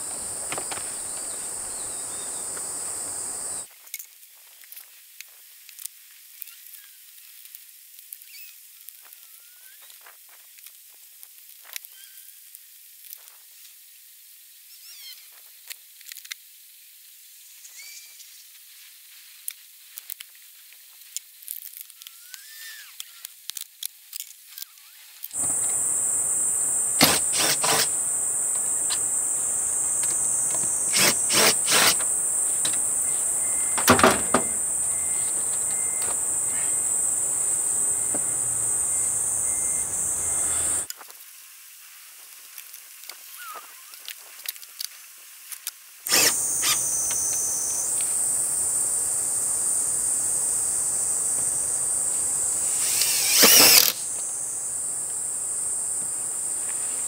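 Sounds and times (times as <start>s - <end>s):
cicada buzzing: 0.0s - 3.7s, 25.4s - 40.9s, 46.1s - 57.0s
faint bird chirps: 17.6s - 18.3s, 38.4s - 40.9s
sharp knocks: 33.8s - 34.6s.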